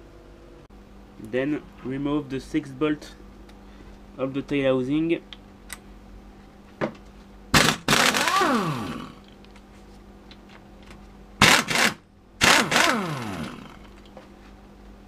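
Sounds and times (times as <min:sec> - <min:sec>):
pneumatic impact wrench: 0:07.5 - 0:09.2, 0:11.4 - 0:13.8
air motor spinning down: 0:07.6 - 0:09.2, 0:11.4 - 0:13.9.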